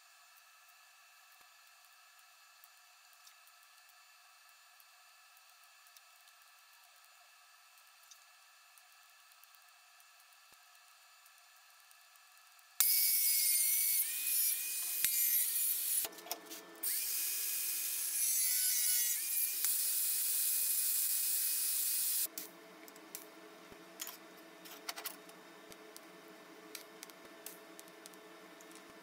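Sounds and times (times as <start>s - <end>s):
faint hum with light clicks: 0.0s - 12.9s, 22.2s - 29.0s
angle grinder grinding steel: 12.8s - 16.1s, 16.8s - 22.3s.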